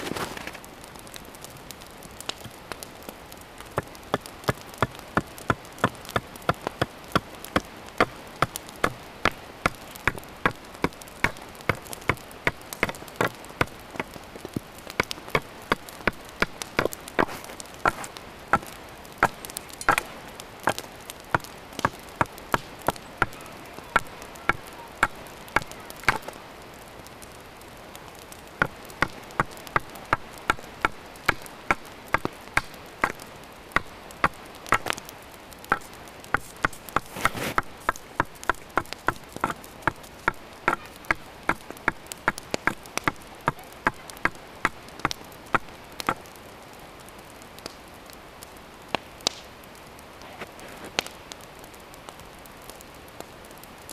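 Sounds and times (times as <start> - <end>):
hatchet chopping wood: 3.6 - 26.4, 28.6 - 46.3.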